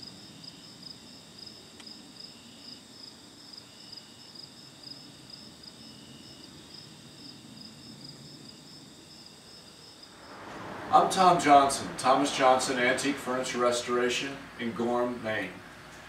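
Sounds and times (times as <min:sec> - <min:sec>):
lower insect trill: 0:00.0 - 0:10.4
insects chirping: 0:00.0 - 0:11.2.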